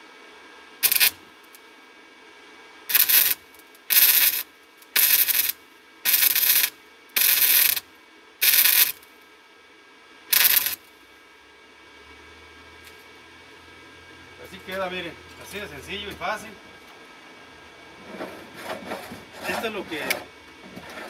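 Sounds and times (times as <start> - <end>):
welder arc crackling: 0.8 - 1.6, 2.9 - 9.1, 10.3 - 10.9.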